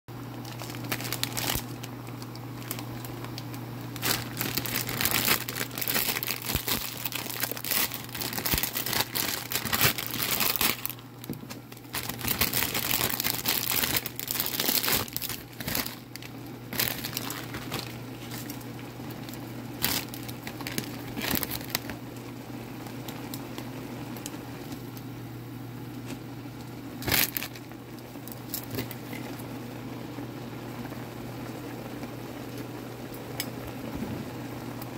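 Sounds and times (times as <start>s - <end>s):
steady low hum: 0.1s - 34.9s
water boiling in a pan: 0.1s - 34.9s
plastic packet crinkling and tearing: 0.2s - 22.0s, 27.0s - 29.2s.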